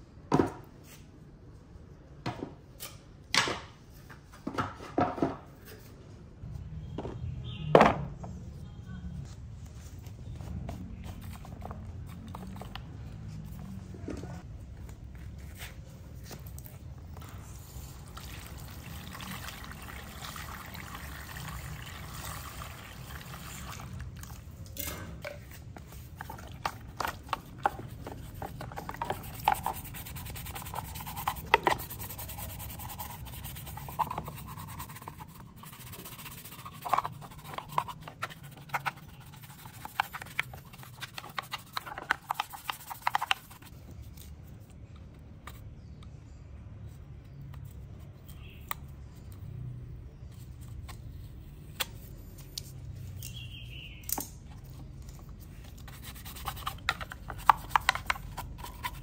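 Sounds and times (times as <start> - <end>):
water running into a plastic tub: 17.9 - 24.4
brush scrubbing metal parts: 25.7 - 43.6.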